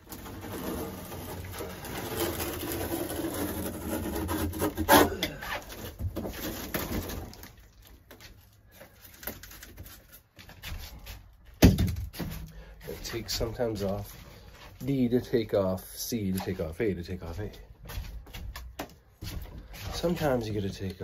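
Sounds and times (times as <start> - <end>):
panel creaking and scraping: 0.0 - 7.3.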